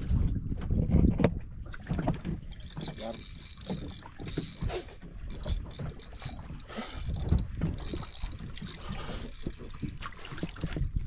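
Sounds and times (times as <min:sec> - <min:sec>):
fishing reel gears clicking: 0:02.1 - 0:10.2.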